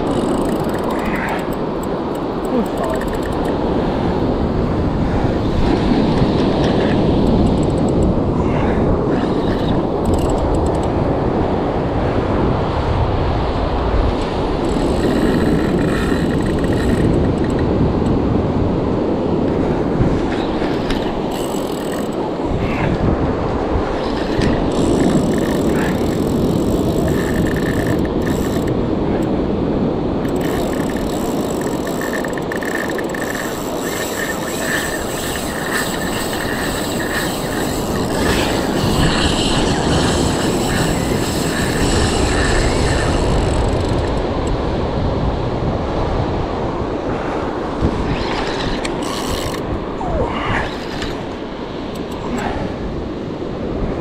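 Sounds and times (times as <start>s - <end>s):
fishing reel whine: 0.0s - 3.7s, 9.2s - 10.9s, 14.6s - 17.7s, 20.3s - 23.0s, 23.8s - 29.3s, 30.2s - 44.3s, 48.0s - 52.2s
wind rumble on microphone: 0.0s - 54.0s.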